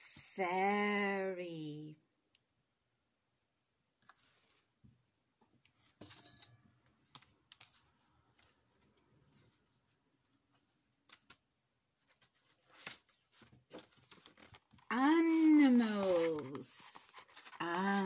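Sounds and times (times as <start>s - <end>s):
pop-up book pages turning: 10.6s - 18.0s.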